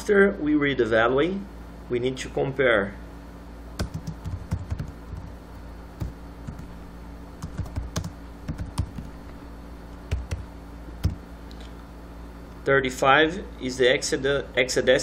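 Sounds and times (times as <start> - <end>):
faint low hum: 0.0 - 15.0
keyboard keys clicking: 3.8 - 5.3, 7.4 - 9.1, 10.1 - 10.4, 11.0 - 11.2.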